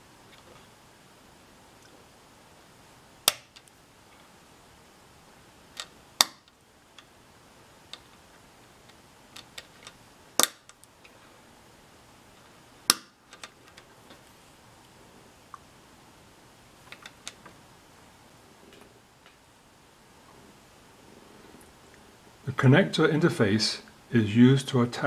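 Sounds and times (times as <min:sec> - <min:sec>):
faint ticks of plastic parts: 0:07.9 - 0:11.3, 0:13.3 - 0:15.7, 0:16.9 - 0:17.6.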